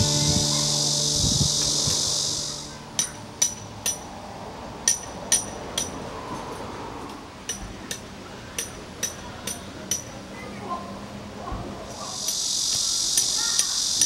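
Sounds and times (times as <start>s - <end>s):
hammer striking metal tent stakes: 2.9s - 4.1s, 4.9s - 6.0s, 7.5s - 10.1s.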